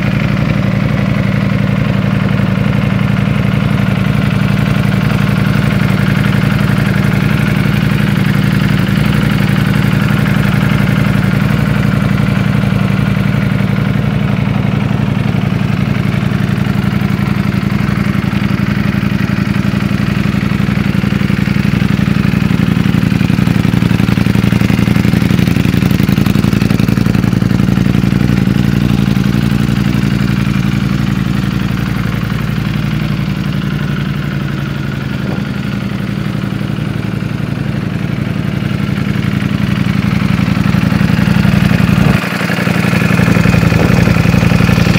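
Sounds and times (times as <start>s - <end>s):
motorcycle engine idling: 0.0s - 44.9s.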